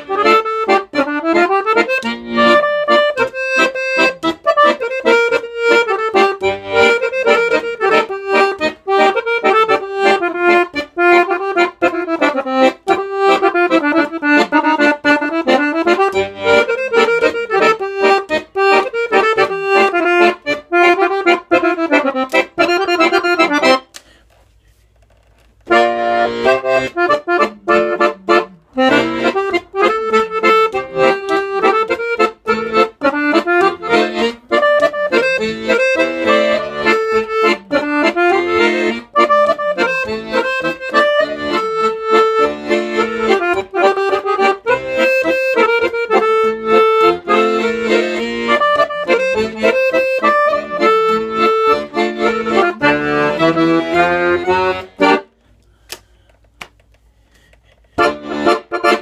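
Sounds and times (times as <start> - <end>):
accordion melody: 0.0 - 24.2, 25.6 - 59.0.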